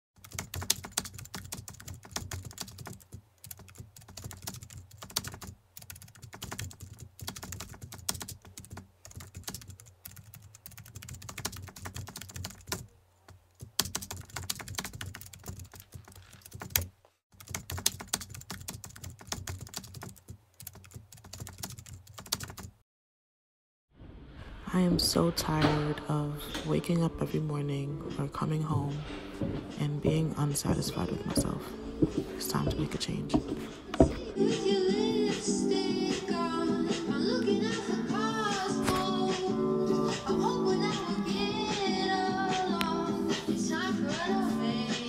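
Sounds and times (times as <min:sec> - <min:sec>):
rapid keyboard typing: 0:00.2 - 0:12.9, 0:13.6 - 0:22.8.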